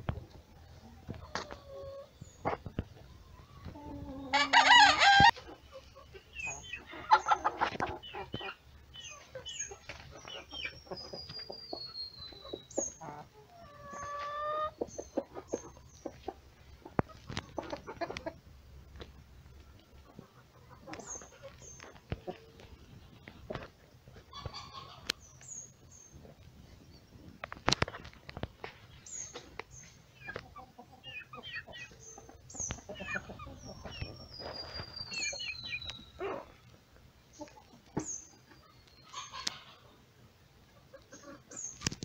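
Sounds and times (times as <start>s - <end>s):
hens clucking: 0.0s - 42.0s
rooster crowing: 4.3s - 5.3s.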